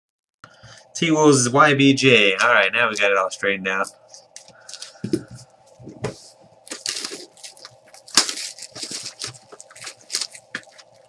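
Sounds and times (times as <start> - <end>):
card pack wrapping crinkling: 4.1 - 5.2, 6.6 - 11.0.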